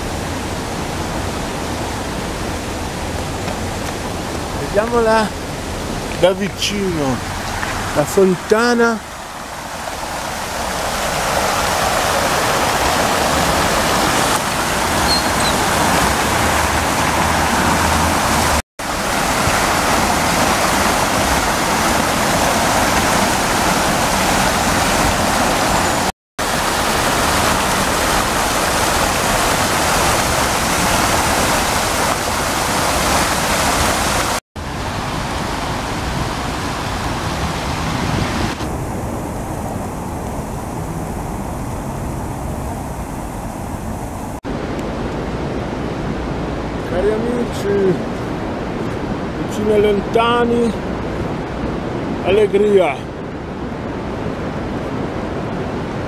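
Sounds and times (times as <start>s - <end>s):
fountain water splashing: 0.0s - 56.0s.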